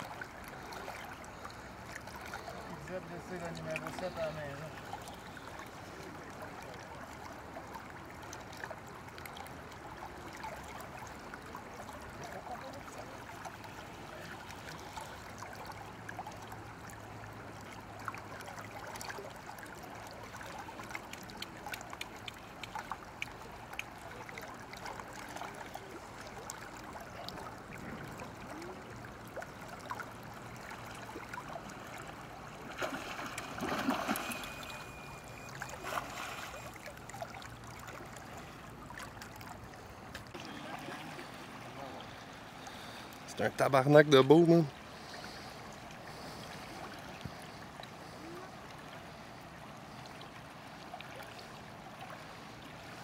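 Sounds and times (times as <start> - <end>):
river water running and lapping: 0.0 - 53.0
fish splashing at the surface: 3.5 - 41.8.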